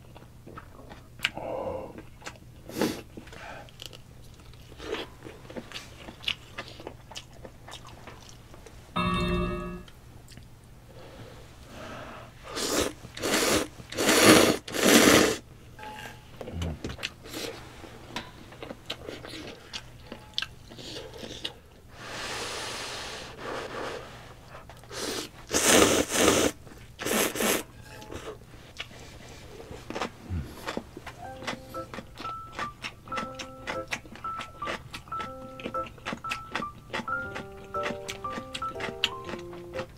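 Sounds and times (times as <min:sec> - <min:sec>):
wet chewing: 0:03.3 - 0:08.4, 0:25.6 - 0:39.9
slurping noodles: 0:12.5 - 0:15.4, 0:24.9 - 0:27.7.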